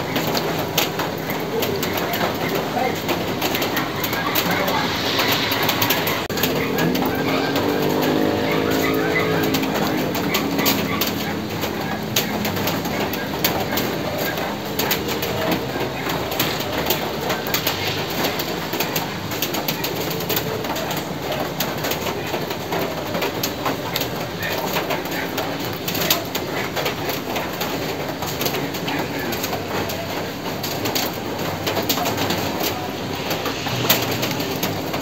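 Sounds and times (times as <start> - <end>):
steady rain falling: 0.0 - 35.0.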